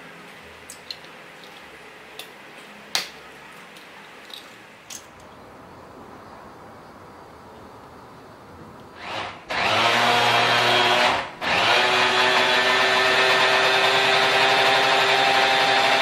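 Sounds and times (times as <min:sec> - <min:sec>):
faint steady hiss: 0:00.0 - 0:09.0.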